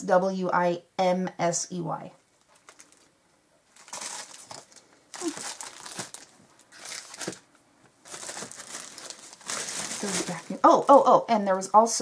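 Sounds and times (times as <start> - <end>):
cellophane crinkling: 2.3 - 11.0.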